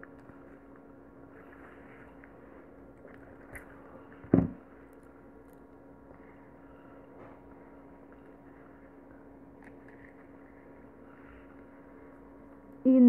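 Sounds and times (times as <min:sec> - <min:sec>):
low steady hum: 0:00.0 - 0:13.0
loud thump: 0:04.3 - 0:04.6.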